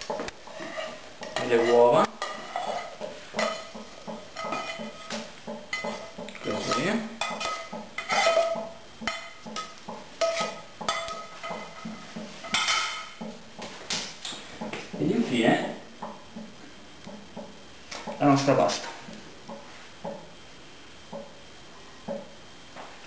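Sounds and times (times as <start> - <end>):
spatula scraping a frying pan: 0.4 - 13.2.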